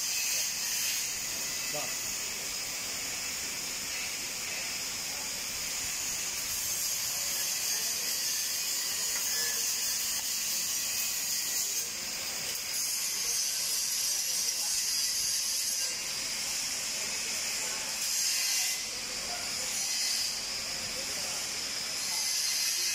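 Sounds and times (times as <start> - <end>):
cutting torch gas hiss: 0.0 - 22.9.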